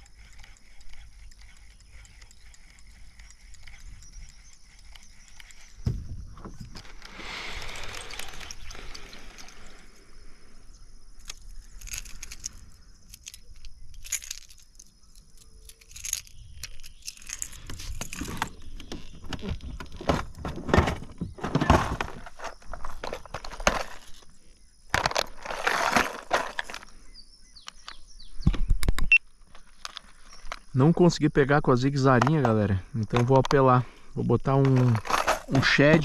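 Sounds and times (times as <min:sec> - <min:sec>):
rattling fishing lure: 0:00.0 - 0:05.8, 0:06.7 - 0:10.0, 0:11.2 - 0:18.4
plastic tackle box handled: 0:15.7 - 0:24.3, 0:24.9 - 0:26.9, 0:34.5 - 0:36.0.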